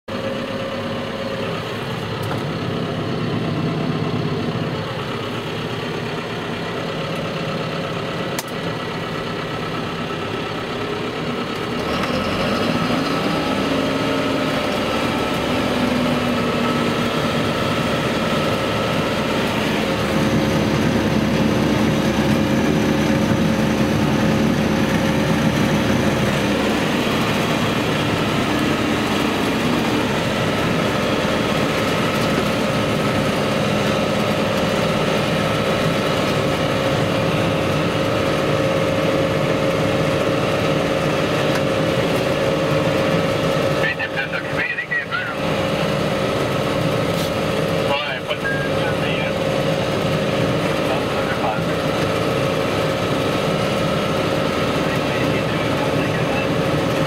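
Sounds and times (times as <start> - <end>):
tractor diesel engine running: 0.0 - 57.0
rotary cutter shredding stalks: 11.5 - 44.4, 45.2 - 57.0.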